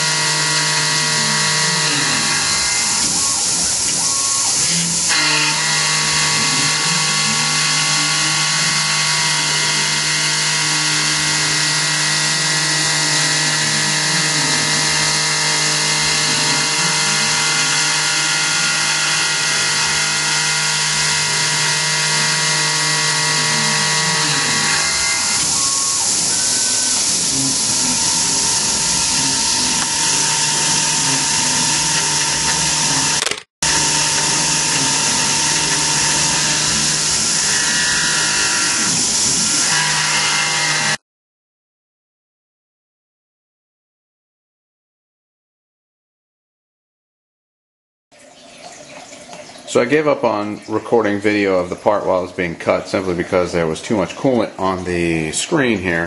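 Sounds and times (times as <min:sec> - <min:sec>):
mill spindle whining: 0:00.0 - 0:41.0
stepper motor tones: 0:00.0 - 0:41.0
coolant spray hiss: 0:25.4 - 0:29.9.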